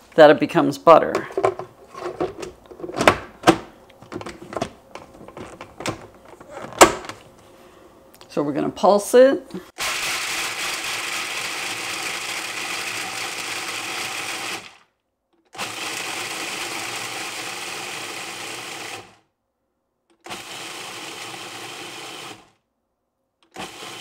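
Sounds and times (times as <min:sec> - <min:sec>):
food processor chopping nuts: 0:09.8 - 0:14.9, 0:15.5 - 0:19.2, 0:20.1 - 0:22.6, 0:23.4 - 0:24.0.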